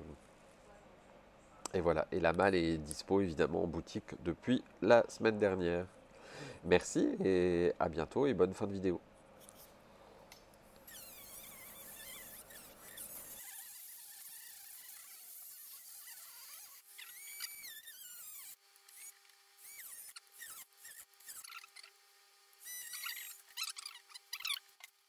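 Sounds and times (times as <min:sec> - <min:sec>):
cordless screwdriver whine: 0:10.8 - 0:21.9, 0:22.6 - 0:24.7.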